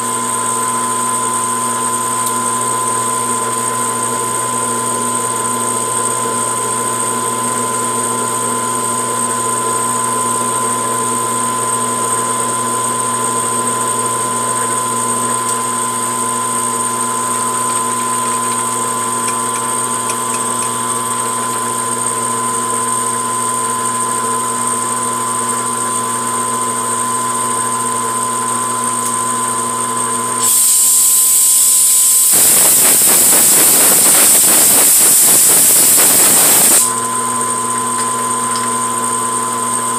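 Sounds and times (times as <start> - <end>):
lathe running with gear whine: 0.0 - 39.9
loud steady hiss: 30.4 - 36.9.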